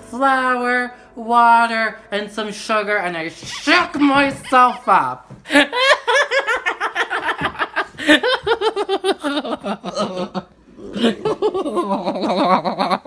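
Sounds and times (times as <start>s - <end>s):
person laughing hard: 4.3s - 13.0s.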